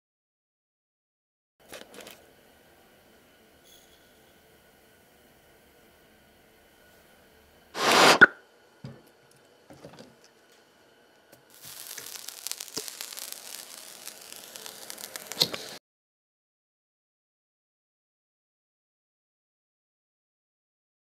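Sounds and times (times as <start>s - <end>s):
hot metal ball crackling and sizzling: 10.4s - 15.8s
sharp crack: 11.6s - 15.7s.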